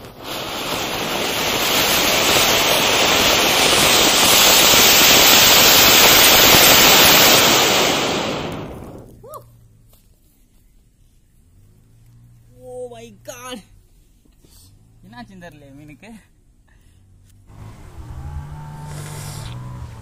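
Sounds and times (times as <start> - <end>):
firework fountain hissing: 0.0 - 9.1.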